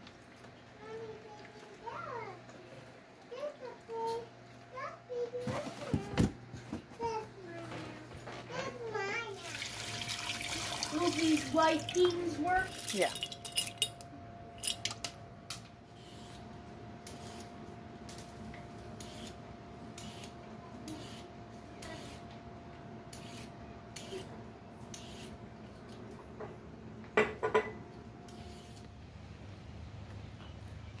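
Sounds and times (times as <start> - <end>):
vegetable peeler scraping carrot: 23.1 - 24.3, 24.9 - 25.3.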